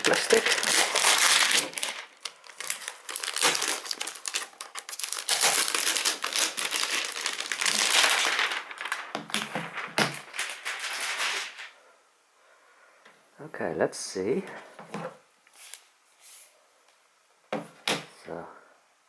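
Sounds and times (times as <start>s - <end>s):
plastic sleeve crinkling: 0.0s - 11.8s.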